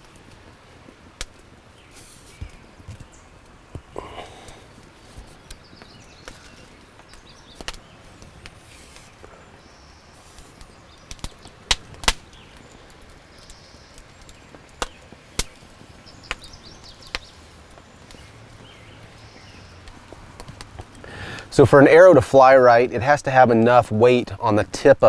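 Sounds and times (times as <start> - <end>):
faint bird chirps: 5.2 - 11.6, 12.3 - 19.8.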